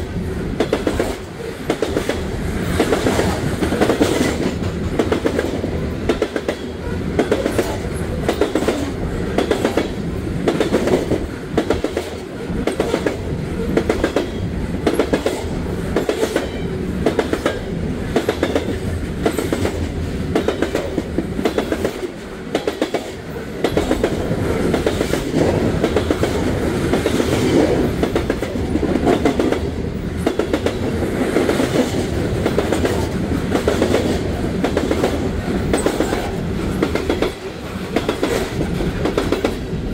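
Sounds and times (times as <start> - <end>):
train cars rolling rumble: 0.0 - 39.9
train wheels clicking: 0.5 - 39.9.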